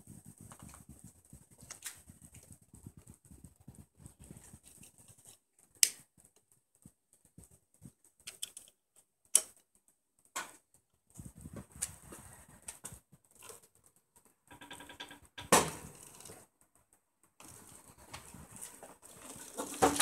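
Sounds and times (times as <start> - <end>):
hands rubbing cables: 0.0 - 10.0, 11.0 - 14.4, 16.0 - 20.0
sharp clicks of mount parts: 8.2 - 9.6.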